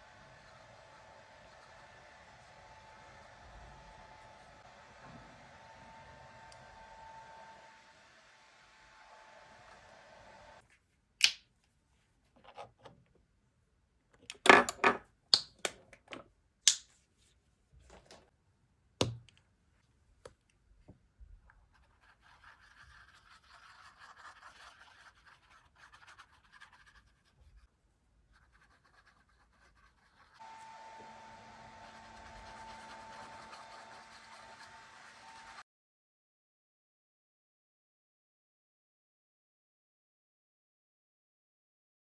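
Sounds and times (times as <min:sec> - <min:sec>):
paintbrush scratching on canvas: 0:21.7 - 0:27.7, 0:28.3 - 0:35.6.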